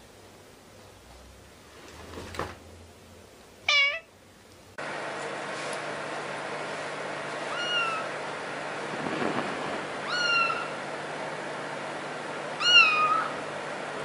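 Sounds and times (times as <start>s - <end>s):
kitten meowing: 3.7s - 4.1s, 7.5s - 8.1s, 10.0s - 10.8s, 12.6s - 13.3s.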